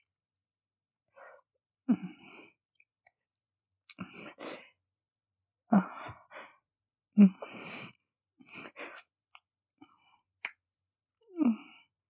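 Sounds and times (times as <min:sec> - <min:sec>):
breathy sighs and moans: 0:01.2 - 0:02.6, 0:05.7 - 0:06.6, 0:11.2 - 0:12.0
wet mouth noises: 0:10.4 - 0:10.8.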